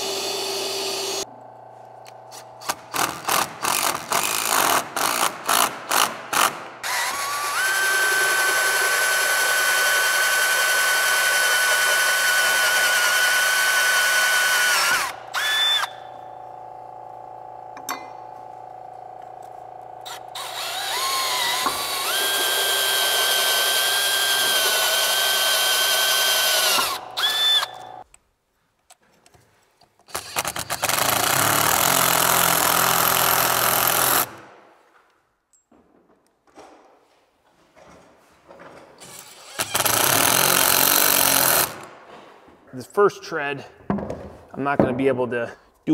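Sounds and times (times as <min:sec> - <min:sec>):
cordless drill boring into wood: 0:00.0 - 0:01.2, 0:02.6 - 0:16.0, 0:20.0 - 0:28.0, 0:30.1 - 0:34.4, 0:39.1 - 0:41.9.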